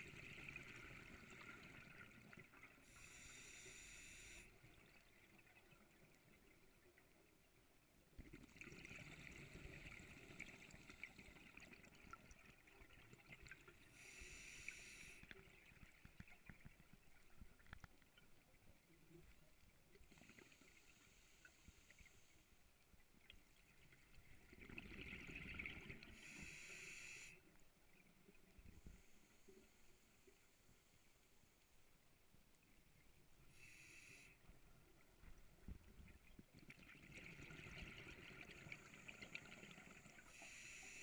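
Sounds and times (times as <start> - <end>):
regulator inhale hiss: 2.8 - 4.5, 13.9 - 15.3, 26.2 - 27.4, 33.5 - 34.5, 40.3 - 41.0
regulator bubbles exhaled: 24.4 - 26.4, 36.0 - 41.0.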